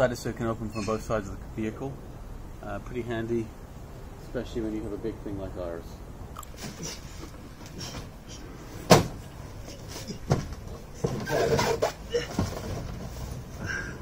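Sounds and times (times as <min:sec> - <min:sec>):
scraping rustle: 0:06.5 - 0:13.7.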